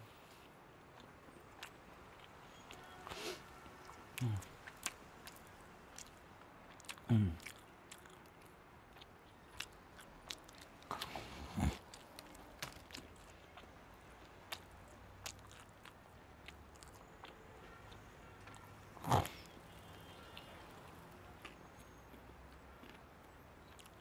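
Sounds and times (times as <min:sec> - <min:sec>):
person chewing crunchy food: 0:01.0 - 0:13.7, 0:14.4 - 0:19.6, 0:21.4 - 0:24.0.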